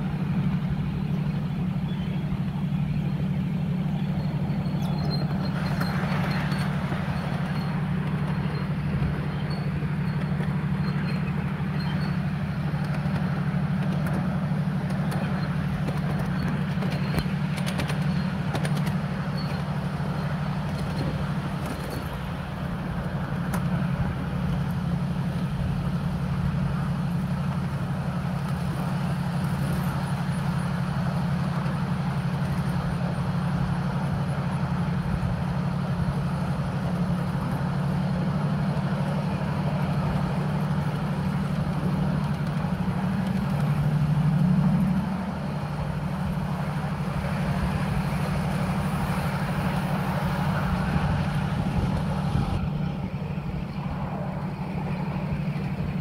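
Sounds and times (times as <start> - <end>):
miniature train low drone: 0.0 - 56.0
wheels on rails: 0.0 - 56.0.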